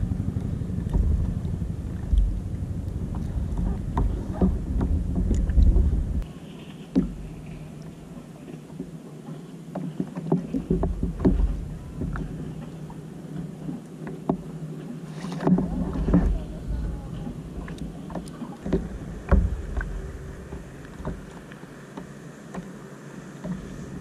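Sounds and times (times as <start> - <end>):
wind buffeting microphone: 0.0 - 6.3, 15.4 - 21.6.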